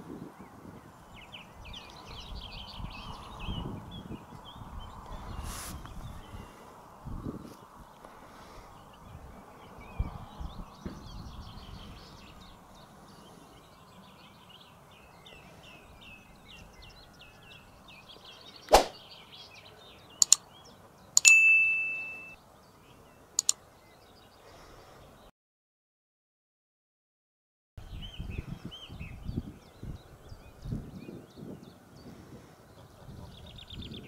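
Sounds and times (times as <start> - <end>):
faint outdoor background noise: 0.0 - 25.3, 27.8 - 34.0
high bird chirps: 16.6 - 22.4, 23.4 - 23.6
sharp swish: 18.7 - 19.0
mouse clicks: 20.2 - 20.4
bright bell ding: 21.2 - 22.4.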